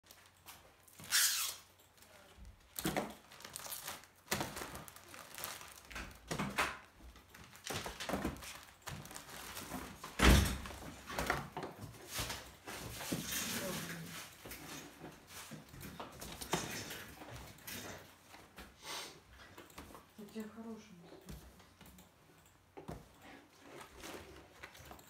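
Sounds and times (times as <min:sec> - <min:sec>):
packaging rustling: 0:00.1 - 0:11.6.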